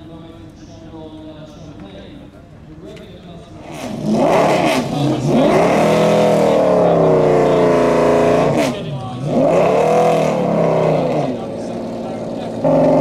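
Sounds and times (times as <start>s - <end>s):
car engine revving: 3.6s - 13.0s.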